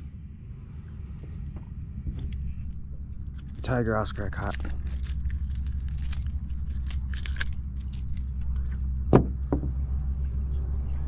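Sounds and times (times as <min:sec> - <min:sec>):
steady low hum: 0:00.0 - 0:11.0
metal pliers and hook clinking: 0:03.3 - 0:09.0.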